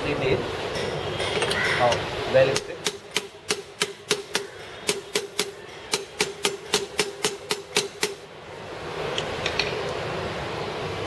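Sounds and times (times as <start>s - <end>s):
hammer tapping metal: 0.8s - 8.2s.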